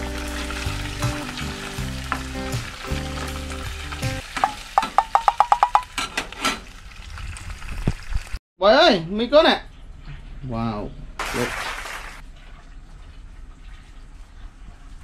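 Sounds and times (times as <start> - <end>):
food sizzling in a frying pan: 0.0 - 5.4.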